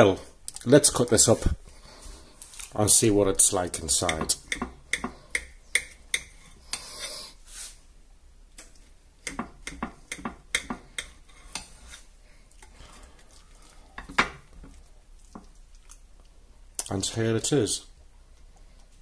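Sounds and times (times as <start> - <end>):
knife scraping on plate: 11.0 - 12.1.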